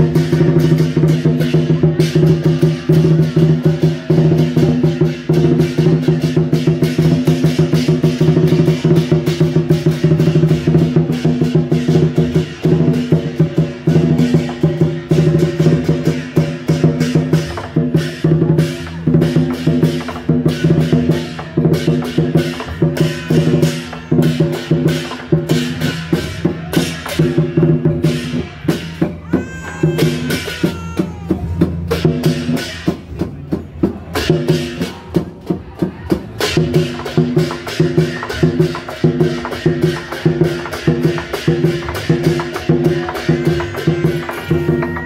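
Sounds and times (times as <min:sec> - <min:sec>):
drums and cymbals beating: 0:00.0 - 0:45.0.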